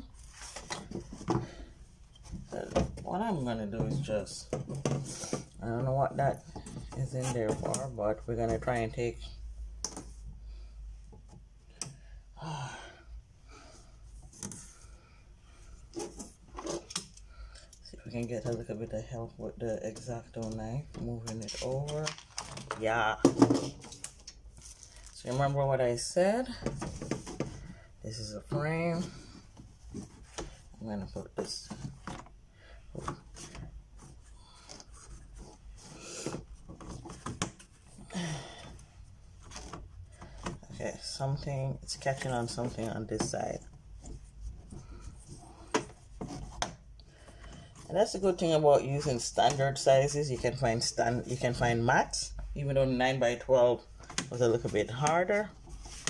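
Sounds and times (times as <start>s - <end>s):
breathy sigh: 12.4s - 13.7s, 38.1s - 38.8s.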